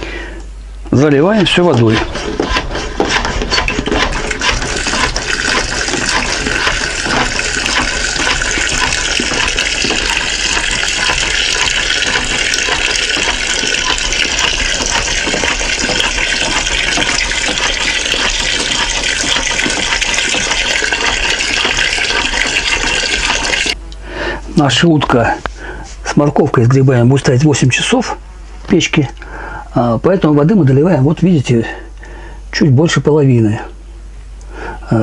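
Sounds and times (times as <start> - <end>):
water pouring into a pot: 4.6 - 23.8.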